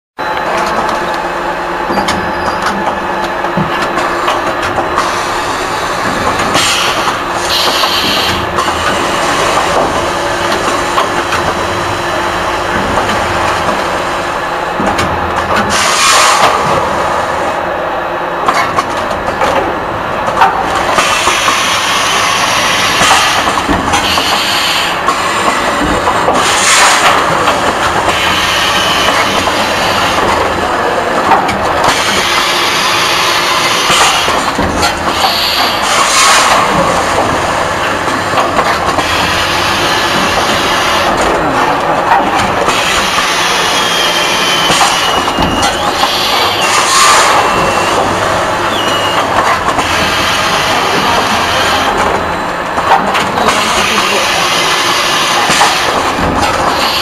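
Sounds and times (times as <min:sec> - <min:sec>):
packaging machine clatter and hum: 0:00.3 - 0:17.3, 0:18.0 - 0:57.0
pneumatic air hisses: 0:06.5 - 0:08.4, 0:15.7 - 0:16.6, 0:21.0 - 0:25.0, 0:35.1 - 0:36.6, 0:42.7 - 0:48.0.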